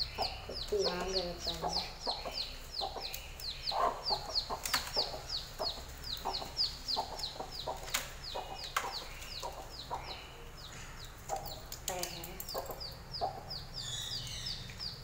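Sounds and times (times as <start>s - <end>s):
hen clucking: 0.0s - 13.7s
chick peeping: 0.0s - 15.0s.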